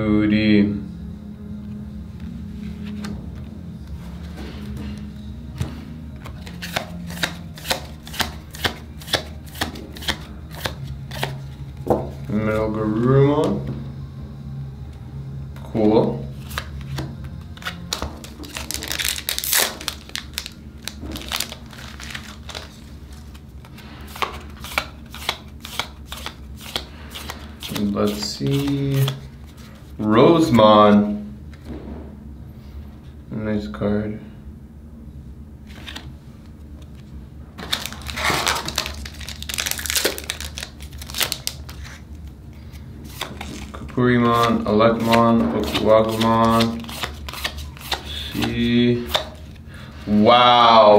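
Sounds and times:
cards rustling swish: 6.2 - 11.6, 16.3 - 30.0, 35.7 - 49.6
cards clicking and sliding: 6.2 - 12.2, 16.4 - 29.9, 35.7 - 36.1, 36.8 - 49.6
wrapper crinkling: 17.6 - 29.8, 37.6 - 42.2.

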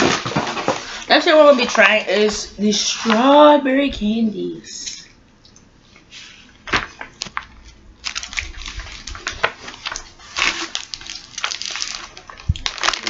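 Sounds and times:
candy wrapper crinkling: 8.0 - 13.0.

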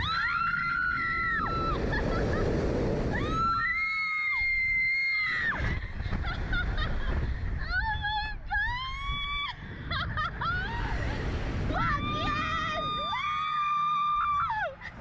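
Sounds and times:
women screaming: 0.0 - 2.0, 3.1 - 5.8, 11.7 - 14.8
wind rushing over microphone: 0.0 - 15.0.

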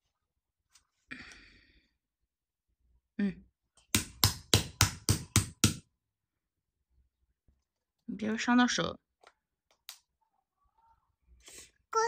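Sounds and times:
toy hammer beating plastic egg: 4.0 - 5.8.

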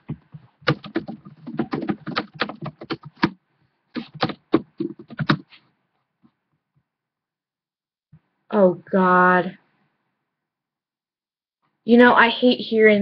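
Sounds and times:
typing on computer keyboard: 0.6 - 3.4, 4.0 - 5.5.

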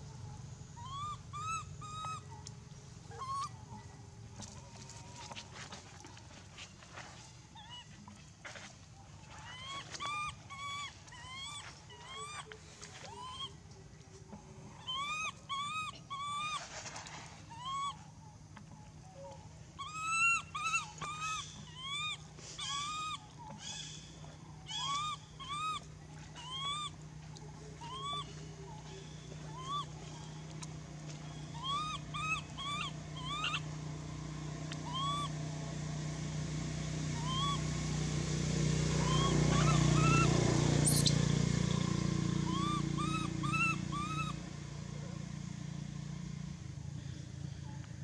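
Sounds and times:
baby monkey crying: 0.8 - 2.3, 3.1 - 3.6, 9.4 - 13.6, 14.8 - 16.6, 17.5 - 18.0, 19.8 - 23.8, 24.7 - 25.8, 26.4 - 27.0, 27.8 - 28.8, 29.4 - 30.0, 31.5 - 33.7, 34.7 - 35.4, 37.2 - 37.6, 39.0 - 41.2, 42.4 - 44.4.

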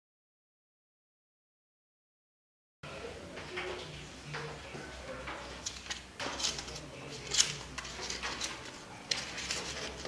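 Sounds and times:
paper notes rustling on glass: 5.1 - 10.0.

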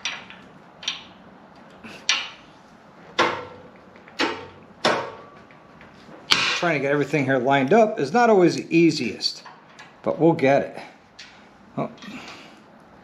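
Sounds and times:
metal clinks and knocks: 0.0 - 1.2.

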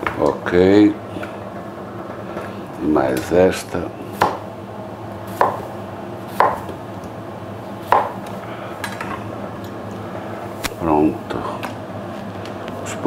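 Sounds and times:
steady low hum: 0.0 - 13.0
knife hitting chopping board: 4.2 - 4.4, 5.4 - 5.6, 6.3 - 6.8, 7.9 - 8.2.

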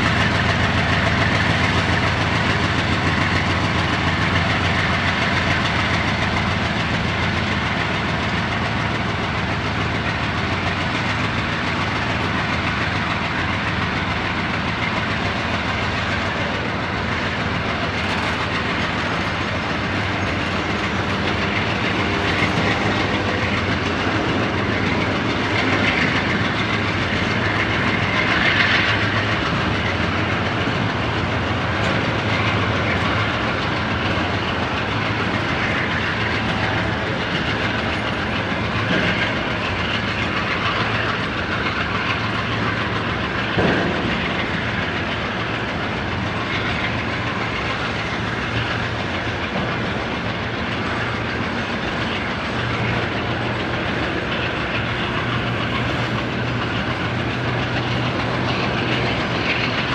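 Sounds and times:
train wheels on track: 0.0 - 59.9.

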